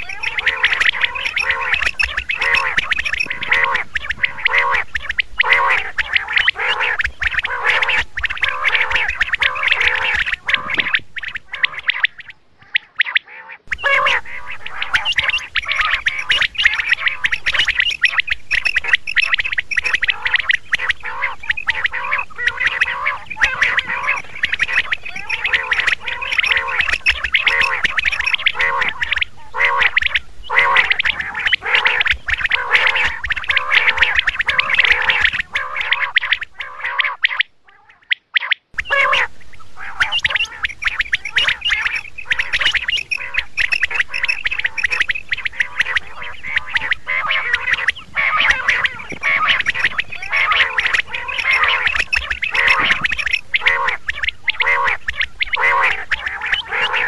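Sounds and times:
quail calling: 0.0 - 57.0.

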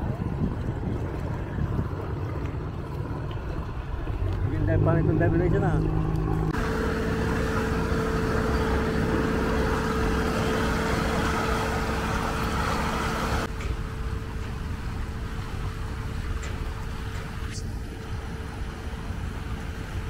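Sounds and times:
engine droning: 0.0 - 20.0
river water rushing: 2.8 - 13.5.

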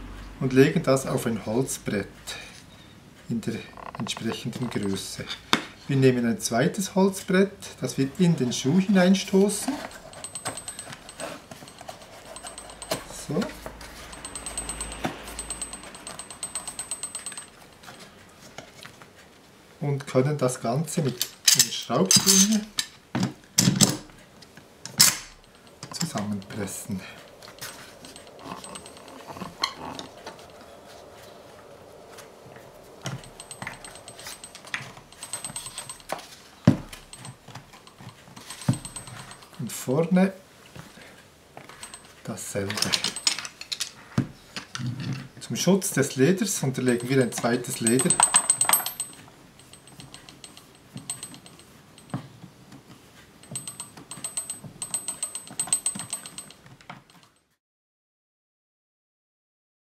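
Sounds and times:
metal clamp clicking and rattling: 9.4 - 18.0, 21.1 - 23.0, 24.8 - 31.2, 32.6 - 39.6, 41.7 - 44.0, 46.7 - 52.2, 53.4 - 57.3
metallic clamp clicks: 24.9 - 26.2.

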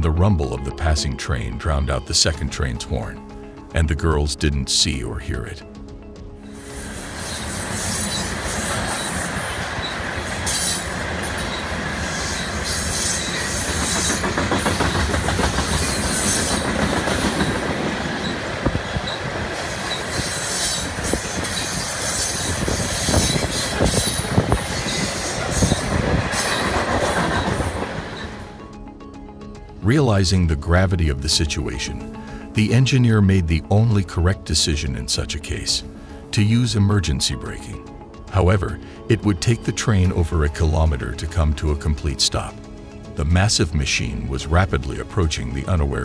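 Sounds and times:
train wheels rumbling on rail: 6.6 - 28.5
train cars knocking and clanking: 12.4 - 28.4.

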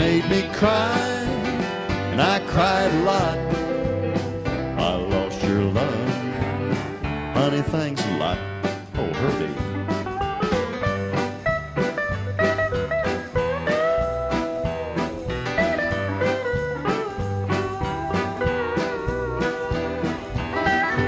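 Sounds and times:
strummed rhythm guitar: 0.0 - 21.0
steel guitar sliding notes: 9.0 - 21.0.

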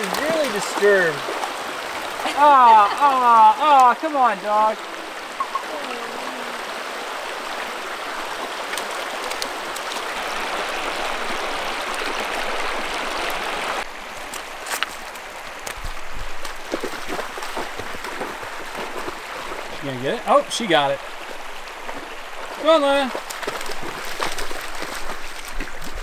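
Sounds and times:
short knocks or splashes: 0.0 - 1.6
water rushing over small waterfall: 0.0 - 26.0.

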